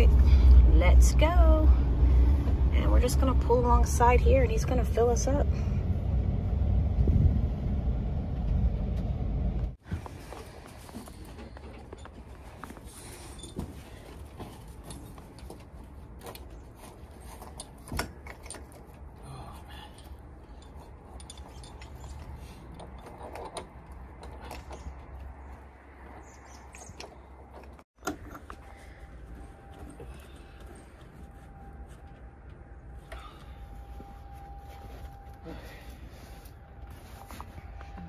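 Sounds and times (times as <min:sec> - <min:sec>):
steady low rumble: 0:00.0 - 0:11.7
metal hose fitting clanking: 0:20.0 - 0:24.9.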